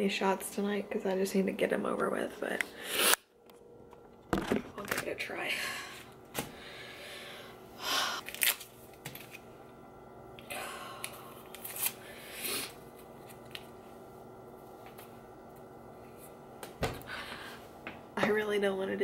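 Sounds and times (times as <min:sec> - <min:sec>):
packet rustling and tearing: 0:08.2 - 0:09.4.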